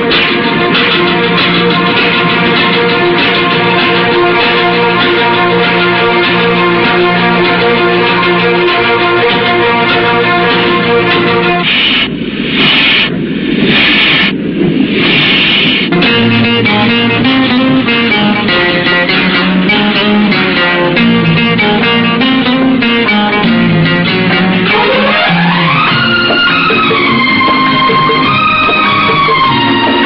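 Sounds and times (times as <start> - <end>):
instrumental film music with bass: 0.0 - 14.3, 15.9 - 30.0
bursts of hiss: 9.1 - 20.8.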